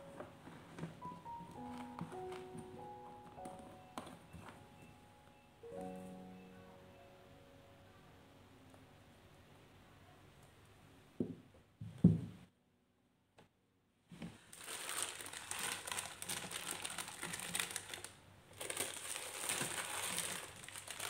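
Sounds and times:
plastic sachets crinkling: 0:01.0 - 0:03.8, 0:14.4 - 0:21.0.

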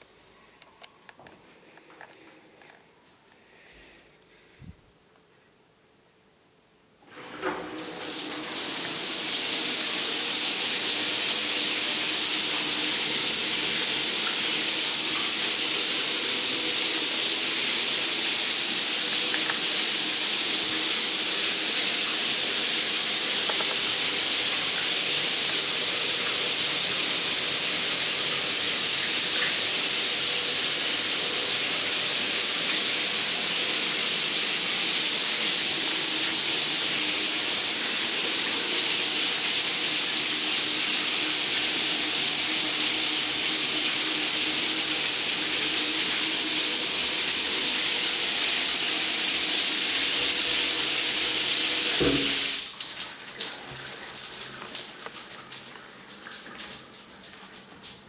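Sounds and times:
water spraying from shower head: 0:16.8 - 0:40.0
shower valve click: 0:23.4 - 0:24.1.

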